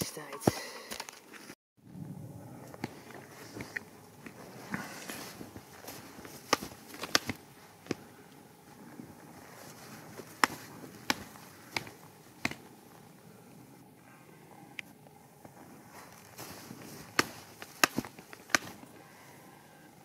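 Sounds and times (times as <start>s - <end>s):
footsteps in snow: 2.8s - 8.0s, 8.6s - 12.8s, 15.5s - 19.0s
trekking poles clicking: 2.8s - 8.4s, 9.4s - 12.8s, 16.0s - 19.1s.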